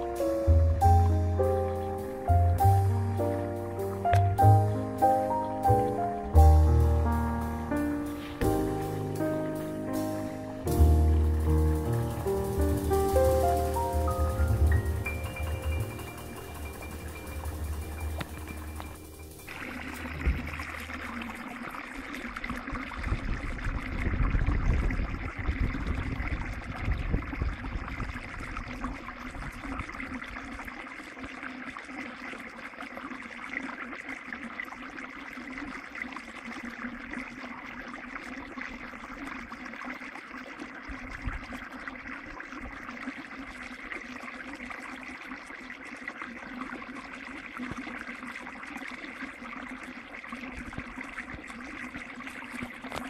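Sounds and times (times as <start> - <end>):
brook trickling over stones: 0.0 - 53.0
low rumble: 8.4 - 21.4.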